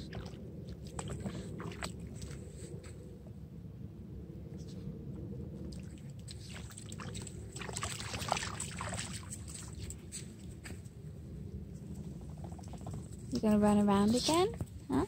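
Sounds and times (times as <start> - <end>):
dog paws splashing in water: 0.0 - 3.0, 5.7 - 10.9
steady low rumble: 0.0 - 15.0.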